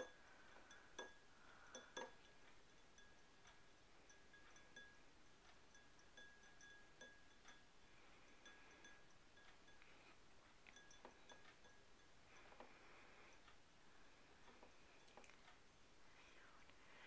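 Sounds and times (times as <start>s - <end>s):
fingernails tapping a glass: 0.0s - 5.0s, 10.7s - 13.1s.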